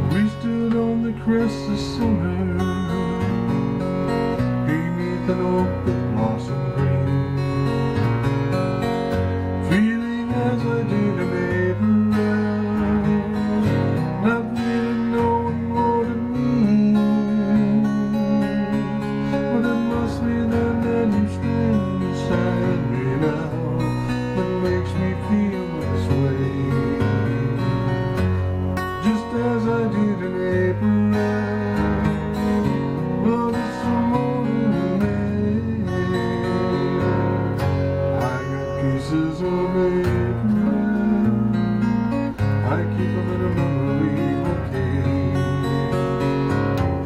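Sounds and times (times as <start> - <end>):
acoustic guitar strumming: 0.0 - 47.0
man singing long notes: 9.6 - 27.8, 33.2 - 37.2, 38.2 - 41.9, 42.6 - 45.7.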